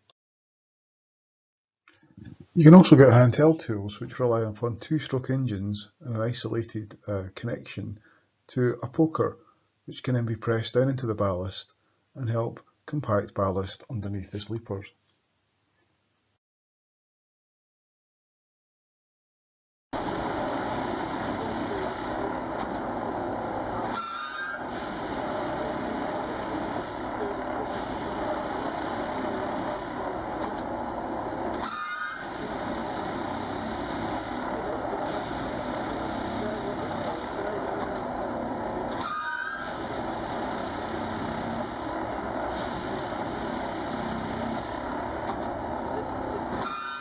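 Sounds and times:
short high whine: 20.0s - 47.0s
tamping machine mechanical din: 20.0s - 47.0s.

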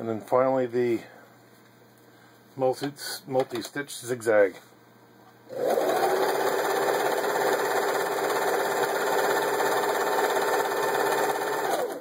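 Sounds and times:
sewing machine running: 5.5s - 12.0s.

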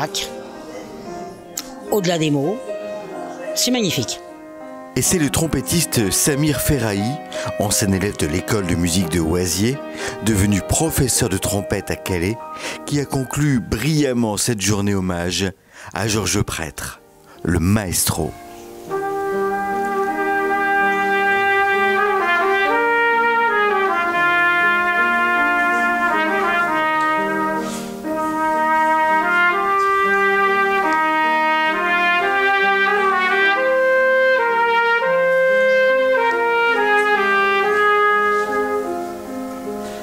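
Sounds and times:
grand piano: 0.0s - 40.0s
trumpet melody: 1.1s - 14.2s, 17.0s - 40.0s
player breathing: 9.8s - 10.2s, 12.5s - 12.8s, 15.6s - 15.9s, 27.6s - 28.0s.

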